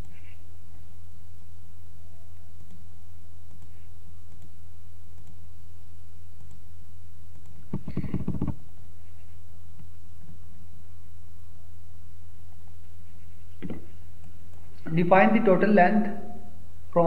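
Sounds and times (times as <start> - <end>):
low electrical hum: 0.0 - 17.0
faint mouse clicks: 3.4 - 5.4, 6.4 - 6.6
mouse scroll wheel clicks: 7.3 - 8.6.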